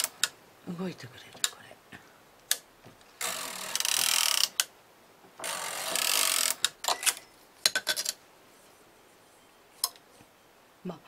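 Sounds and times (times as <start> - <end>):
knitting machine carriage rattling: 5.4 - 8.2.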